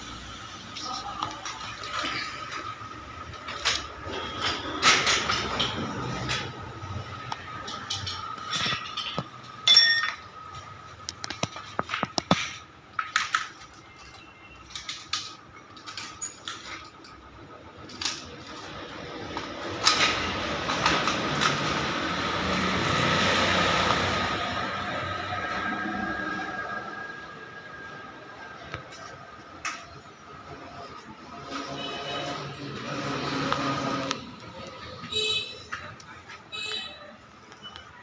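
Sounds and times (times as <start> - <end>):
clinks and knocks: 1.4 - 21.9.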